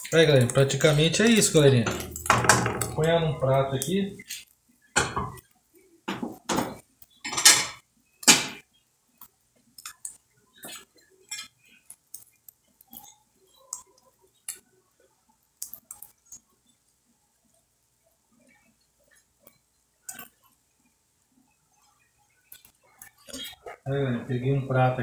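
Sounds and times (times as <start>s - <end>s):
dishes and cutlery clinking: 0.0s - 3.1s, 4.2s - 5.5s, 6.1s - 8.6s, 10.6s - 13.2s.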